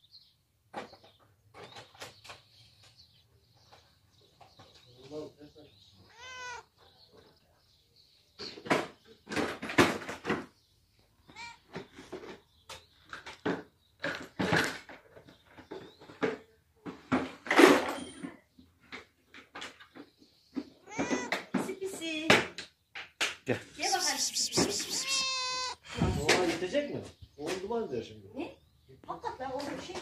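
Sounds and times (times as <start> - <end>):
cat meowing: 6.1 - 6.7, 11.3 - 11.7, 20.8 - 21.4, 23.8 - 26.4.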